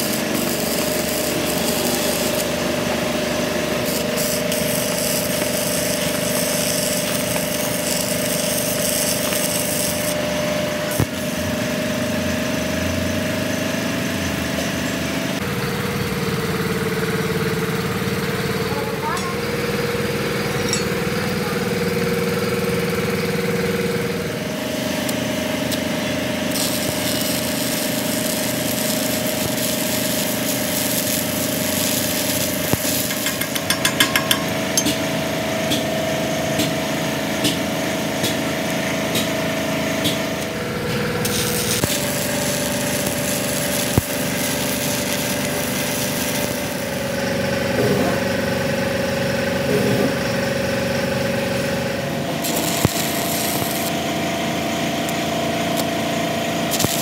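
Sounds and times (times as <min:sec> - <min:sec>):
machine motor humming: 0:00.0 - 0:13.0, 0:14.2 - 0:57.0
sharp metallic taps: 0:33.0 - 0:35.1.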